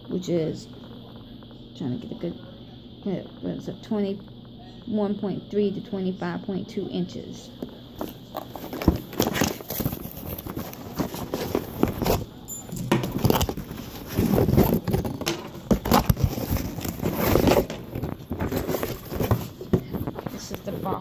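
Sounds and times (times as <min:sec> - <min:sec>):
cardboard box handling on table: 0:08.0 - 0:20.4.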